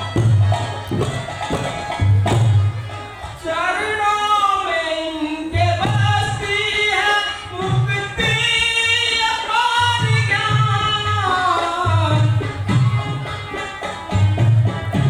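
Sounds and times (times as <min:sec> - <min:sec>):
low beats: 0:00.0 - 0:03.6.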